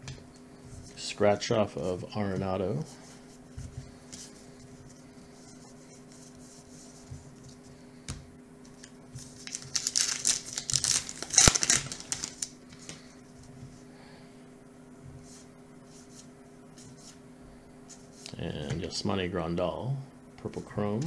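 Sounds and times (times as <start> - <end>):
cards being sorted: 8.7 - 13.0
wrapper tearing and crinkling: 9.4 - 12.5.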